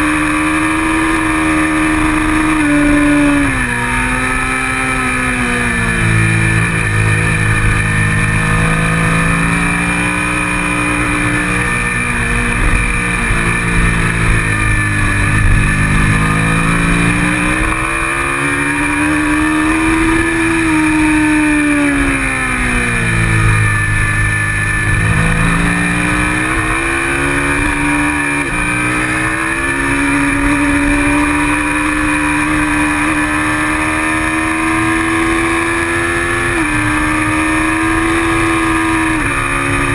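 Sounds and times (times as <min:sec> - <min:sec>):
motorcycle engine accelerating: 0:00.0 - 0:39.9
wind rushing over microphone: 0:06.0 - 0:32.8.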